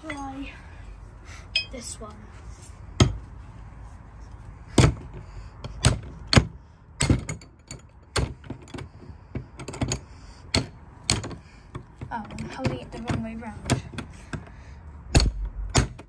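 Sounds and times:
metal rattles: 0:04.7 - 0:14.5.

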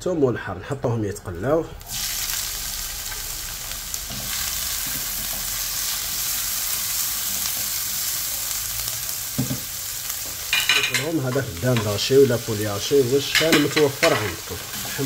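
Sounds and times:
vegetables sizzling in oil: 0:01.8 - 0:15.0
spatula stirring: 0:13.2 - 0:15.0.

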